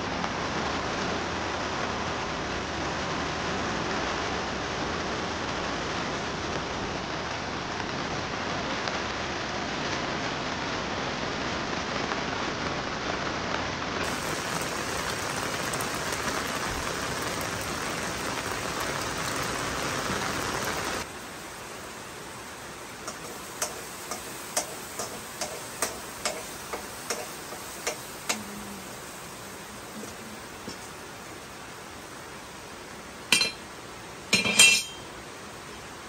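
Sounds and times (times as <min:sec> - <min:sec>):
steady rain hiss: 0:00.0 - 0:36.0.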